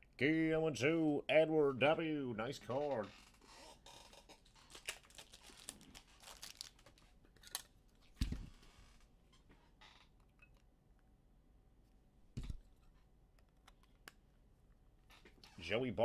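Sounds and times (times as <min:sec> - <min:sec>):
cards and packaging crinkling: 0:04.1 - 0:07.7.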